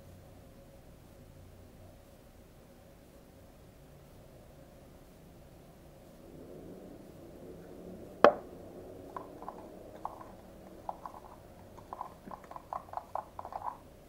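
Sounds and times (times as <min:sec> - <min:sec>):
spoon stirring slime in plastic cup: 0:09.1 - 0:13.8.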